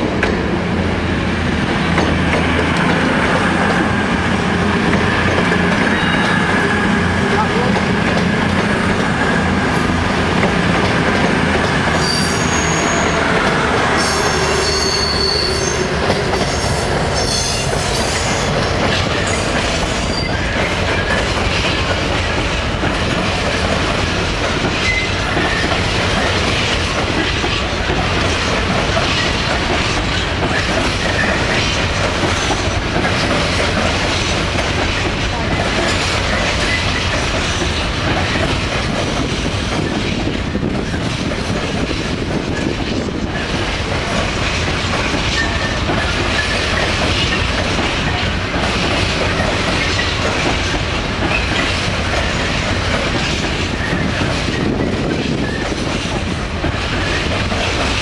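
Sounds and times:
train wheels clattering on rails: 0.0 - 58.0
high-pitched wheel squeal: 12.0 - 13.2, 14.0 - 18.1.

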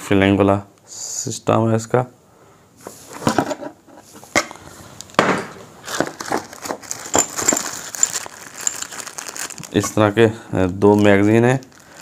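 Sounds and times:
cardboard and plastic packaging handled: 2.8 - 12.0.

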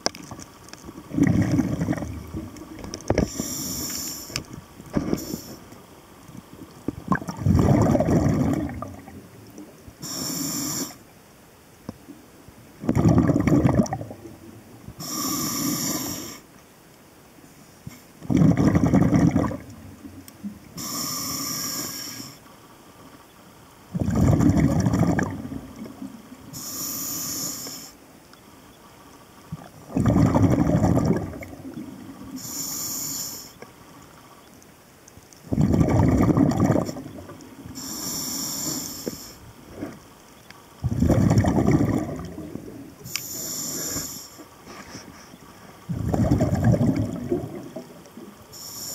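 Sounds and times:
gush of exhaled bubbles: 1.0 - 3.3, 7.0 - 9.3, 12.8 - 14.4, 18.2 - 19.8, 23.9 - 26.2, 29.8 - 32.1, 35.5 - 37.4, 40.8 - 42.9, 45.9 - 48.2
hissing inhale through regulator: 3.1 - 5.8, 10.0 - 11.0, 15.0 - 16.5, 20.8 - 22.4, 26.5 - 28.0, 32.3 - 33.6, 37.6 - 39.5, 43.0 - 46.4, 48.5 - 48.9.

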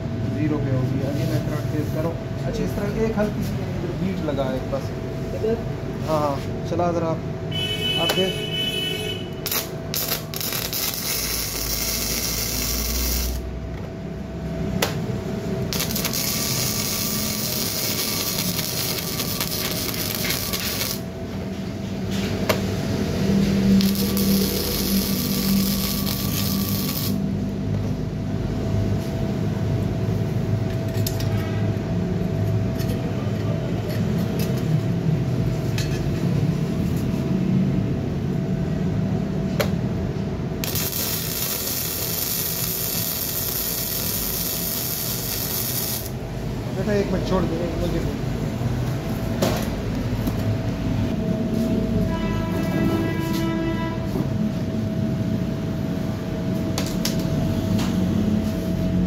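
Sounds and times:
welding arc crackling and buzzing: 9.0 - 13.6, 14.8 - 21.4, 23.3 - 27.4, 40.6 - 46.9.

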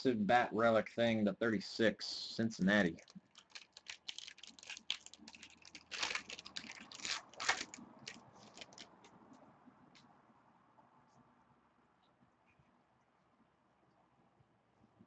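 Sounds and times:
foil wrapper crinkling and tearing: 2.8 - 9.1.

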